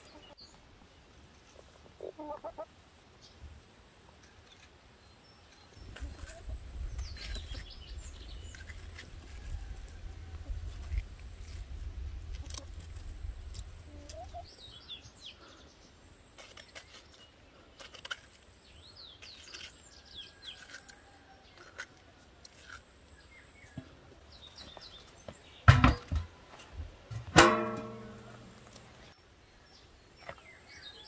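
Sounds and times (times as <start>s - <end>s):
birds chirping: 4.3s - 10.4s
metal cookware clanking: 25.7s - 26.3s, 27.1s - 28.9s.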